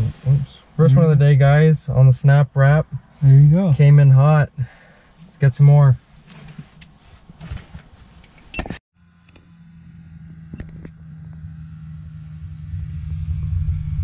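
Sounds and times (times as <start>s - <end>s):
engine running with low rumble: 6.1s - 14.0s.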